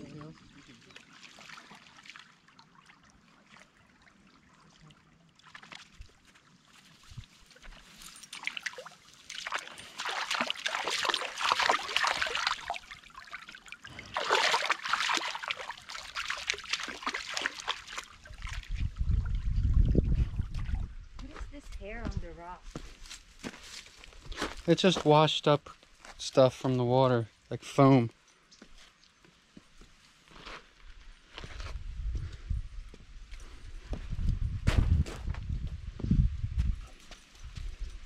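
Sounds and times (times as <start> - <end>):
creek water trickling over stones: 0.0 - 22.4
dog splashing in water: 7.5 - 18.8.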